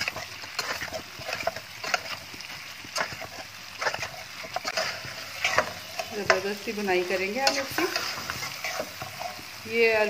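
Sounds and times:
food sizzling in oil: 0:00.0 - 0:10.0
spoon scraping metal pot: 0:02.9 - 0:06.6, 0:07.4 - 0:09.5.

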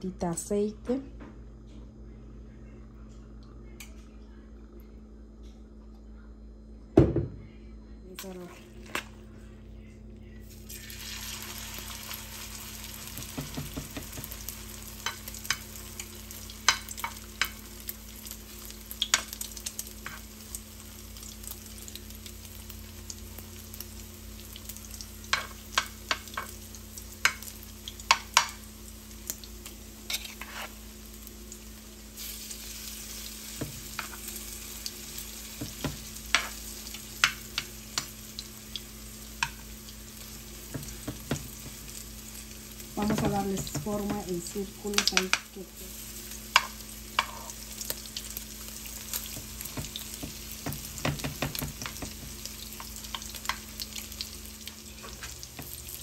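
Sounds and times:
patties sizzling in hot oil: 0:10.4 - 0:56.0
metal spoon scraping a pan: 0:30.1 - 0:30.8.

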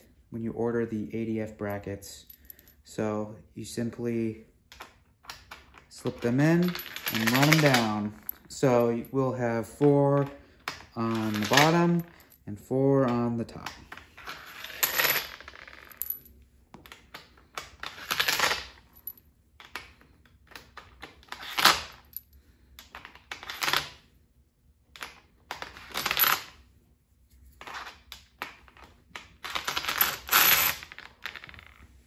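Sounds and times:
bolts clinking in a palm: 0:04.8 - 0:12.4.

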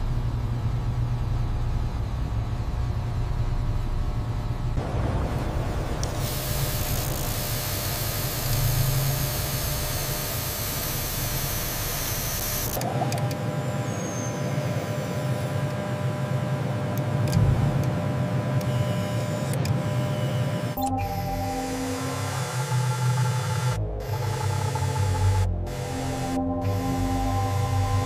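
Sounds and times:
machine hum: 0:00.0 - 0:28.0
loud hiss: 0:06.0 - 0:11.8
faint steady tones: 0:17.8 - 0:28.0.

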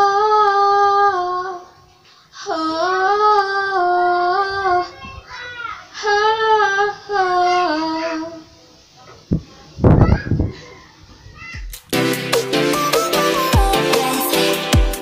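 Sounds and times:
singer breathing: 0:01.9 - 0:02.4.

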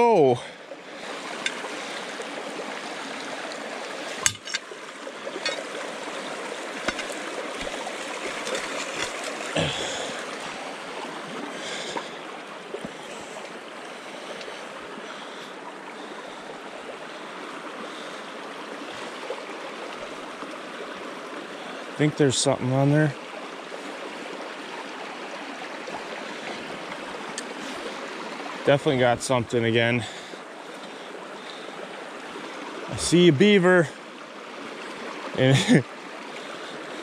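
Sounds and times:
stream flowing over shallows: 0:00.0 - 0:37.0
metal rod knocking: 0:04.2 - 0:04.6.

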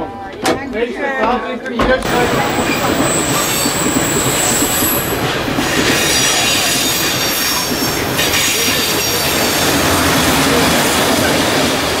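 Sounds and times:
tram rumbling on track: 0:02.0 - 0:12.0
high wheel squeal: 0:02.2 - 0:11.3.

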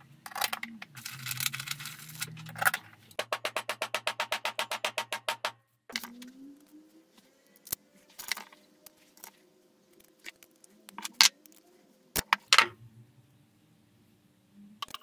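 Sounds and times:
small parts clicking and rattling: 0:00.0 - 0:04.0, 0:07.4 - 0:12.7.

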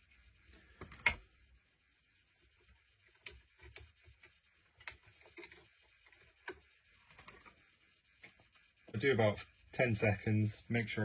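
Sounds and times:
faint clicks and taps: 0:03.0 - 0:07.6.

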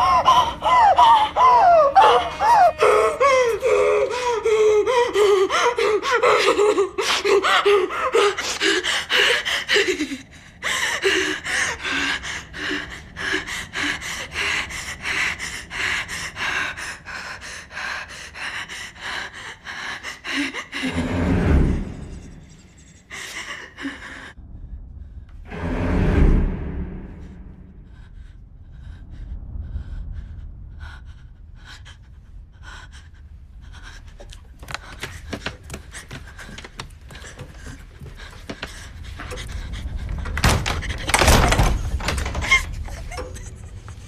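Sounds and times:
whimpering cries: 0:00.0 - 0:07.0
deep low rumbles: 0:23.9 - 0:44.0.

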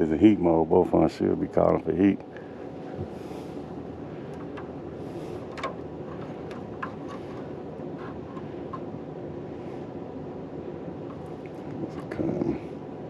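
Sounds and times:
heating system droning: 0:00.0 - 0:13.0
light clicks of wires handled: 0:05.4 - 0:08.9.

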